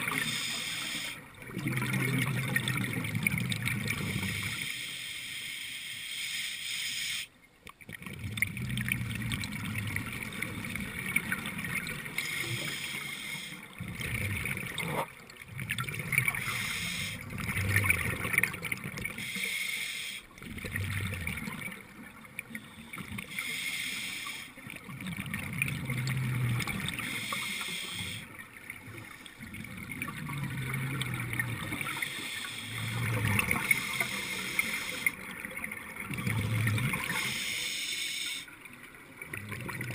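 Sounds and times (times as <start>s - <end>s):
exhaled bubbles bubbling: 0.0s - 4.6s, 7.7s - 19.3s, 20.4s - 23.4s, 24.6s - 37.4s, 38.5s - 39.9s
regulator inhale hiss: 0.1s - 1.2s, 4.2s - 7.3s, 12.2s - 13.7s, 16.4s - 17.2s, 19.2s - 20.3s, 22.6s - 24.6s, 27.0s - 28.3s, 31.9s - 33.0s, 33.7s - 35.2s, 37.1s - 38.5s.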